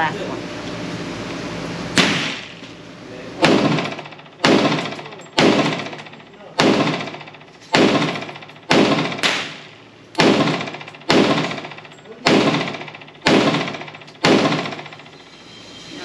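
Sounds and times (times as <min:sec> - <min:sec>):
pistol shots with echo: 0:02.0 - 0:02.6, 0:03.4 - 0:15.0.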